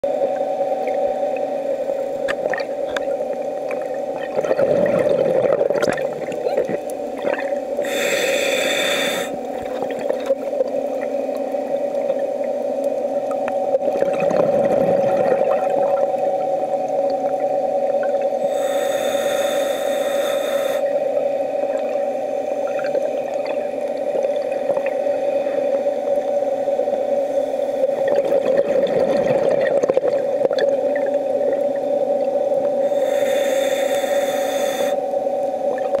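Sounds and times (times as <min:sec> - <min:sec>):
exhaled bubbles rumbling: 0:00.3 - 0:08.0, 0:09.4 - 0:18.5, 0:21.2 - 0:26.8, 0:27.8 - 0:32.9
scuba regulator hissing breaths: 0:07.8 - 0:09.4, 0:18.4 - 0:21.0, 0:32.8 - 0:35.0.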